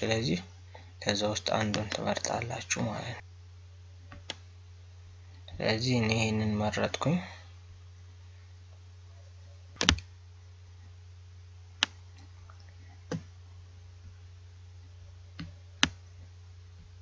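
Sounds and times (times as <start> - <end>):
steady low hum: 0.0 - 17.0
mouse button clicks: 9.8 - 10.0.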